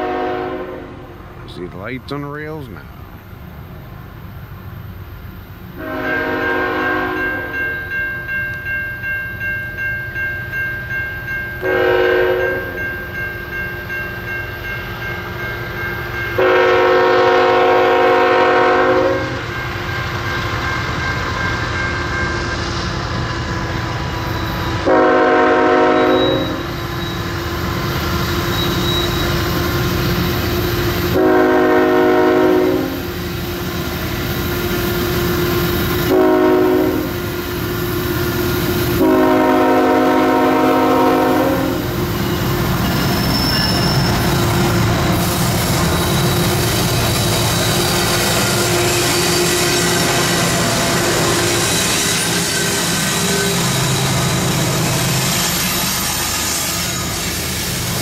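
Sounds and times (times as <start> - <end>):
locomotive air horn blasts: 0.0 - 1.1, 5.8 - 7.5, 11.6 - 12.8, 16.4 - 19.4, 24.8 - 26.8, 31.1 - 33.2, 36.0 - 37.4, 38.9 - 41.9
diesel engines and train rumbling: 0.0 - 58.0.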